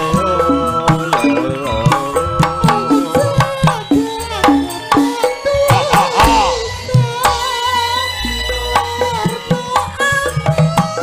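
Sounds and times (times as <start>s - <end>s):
woman singing into a microphone: 0.0s - 11.0s
ringing metal notes: 0.3s - 7.5s
hand drum strokes: 1.0s - 7.5s.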